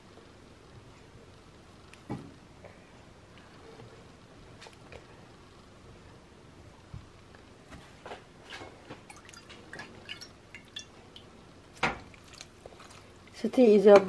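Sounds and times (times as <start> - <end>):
soft ticks and drips of food: 8.8 - 11.4, 12.0 - 14.0.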